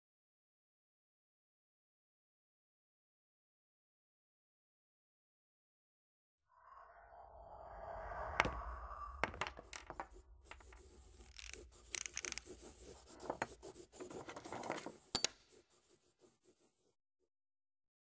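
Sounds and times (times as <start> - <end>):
pen scribbling on paper: 9.4 - 17.0.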